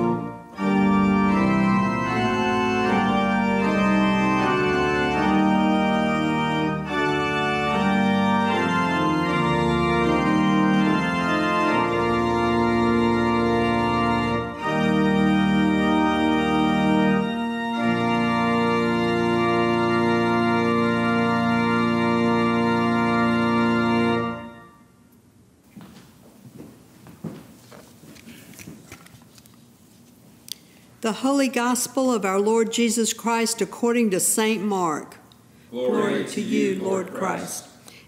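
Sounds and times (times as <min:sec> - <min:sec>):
church organ playing hymn chords: 0:00.0 - 0:25.0.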